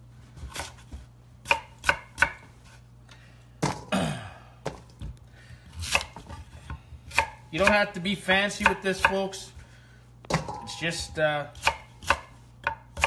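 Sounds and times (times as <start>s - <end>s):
knife chopping on cutting board: 0.4s - 2.5s, 5.8s - 6.4s, 7.1s - 8.0s, 8.6s - 9.4s, 11.5s - 13.0s.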